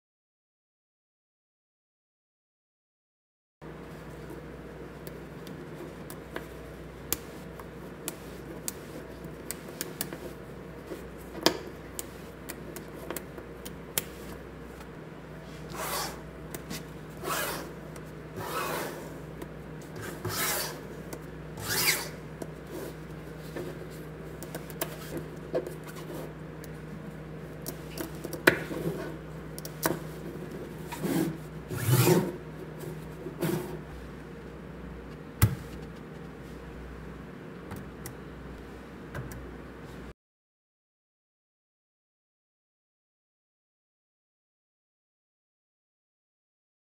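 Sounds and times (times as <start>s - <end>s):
balls rubbing across tabletop: 15.5s - 21.0s, 21.6s - 26.4s, 30.0s - 34.0s.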